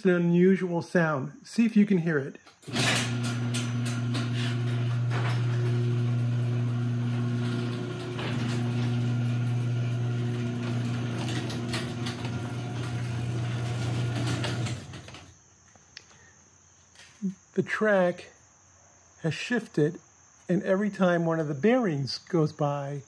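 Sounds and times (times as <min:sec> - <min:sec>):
door roller clicks and clacks: 0:02.6 - 0:15.3
garage door opener motor humming: 0:02.6 - 0:15.4.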